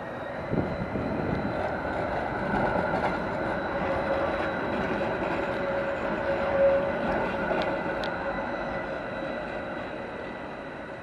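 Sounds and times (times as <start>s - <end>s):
tram rumbling past: 0.0s - 11.0s
tram whine: 0.0s - 11.0s.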